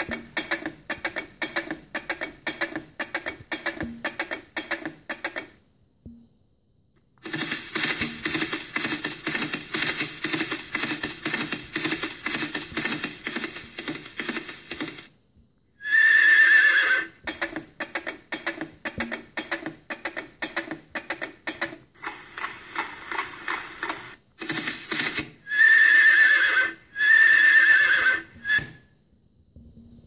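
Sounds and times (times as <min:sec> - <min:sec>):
horse whinnying from a loudspeaker: 0:15.8 - 0:17.2, 0:25.5 - 0:28.8.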